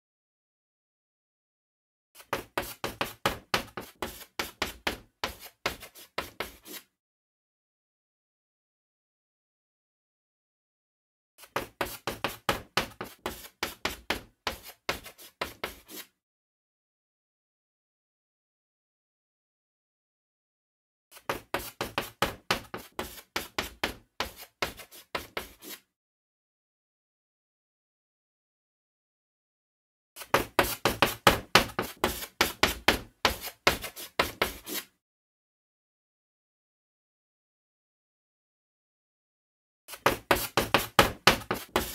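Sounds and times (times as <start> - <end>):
chalk scratching on blackboard: 5.3 - 6.9, 13.0 - 16.1, 21.4 - 25.9, 30.3 - 34.9, 40.0 - 41.9
chalk tapping on a blackboard: 40.0 - 41.9.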